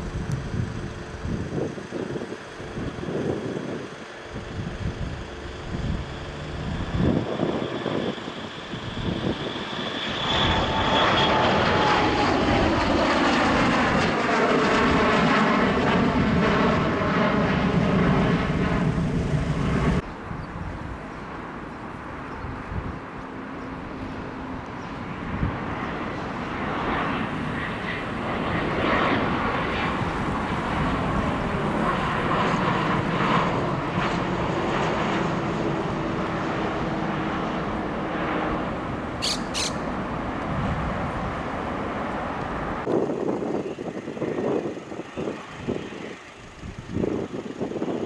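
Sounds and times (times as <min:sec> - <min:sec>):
jet engine rush: 0:00.0 - 0:48.0
short high chirps: 0:39.2 - 0:39.8.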